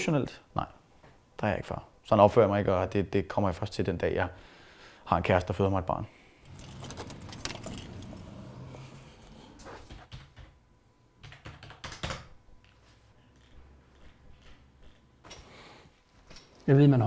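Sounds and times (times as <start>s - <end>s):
low hum: 6.4s - 10.0s
typing on computer keyboard: 10.0s - 10.6s, 11.2s - 12.4s.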